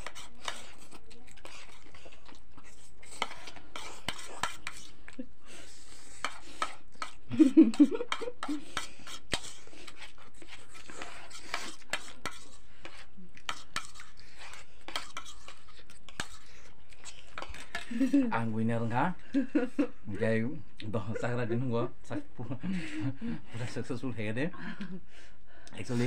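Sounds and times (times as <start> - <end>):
slurping: 0.0 - 18.2.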